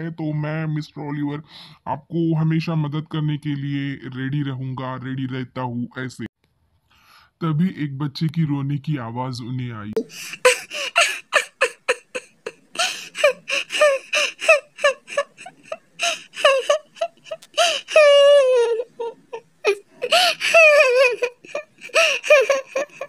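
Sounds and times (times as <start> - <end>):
child crying: 10.0 - 23.0.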